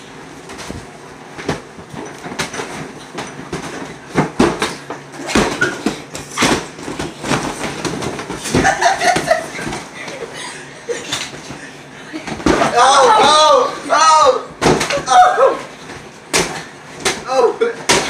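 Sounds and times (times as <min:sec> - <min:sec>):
inflatable boxing gloves thumping: 0:00.0 - 0:10.4, 0:14.6 - 0:18.0.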